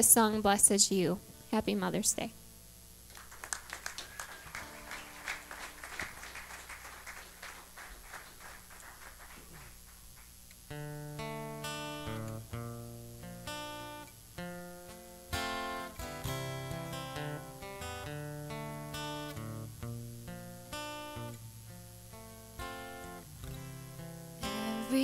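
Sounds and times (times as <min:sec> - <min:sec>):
audience applause: 0:03.1 - 0:10.3
acoustic guitar picking chords: 0:03.8 - 0:25.0.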